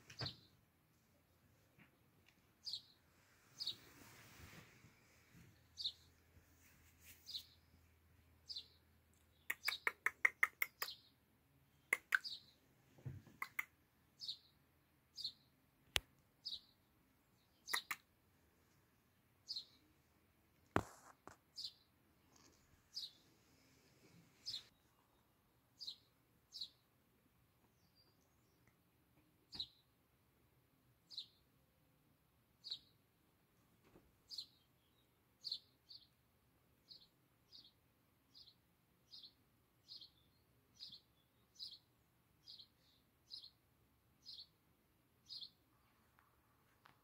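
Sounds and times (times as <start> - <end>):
small bird chirping: 2.5 - 4.3, 5.0 - 6.3, 7.0 - 12.6, 13.2 - 18.2, 19.4 - 20.0, 20.7 - 27.0, 27.6 - 28.8, 29.5 - 30.0, 31.0 - 31.5, 32.6 - 33.1, 34.2 - 36.2, 36.8 - 44.6, 45.2 - 46.2
sharp clicks: 9.5 - 11.0, 12.0 - 12.3, 13.4 - 13.7.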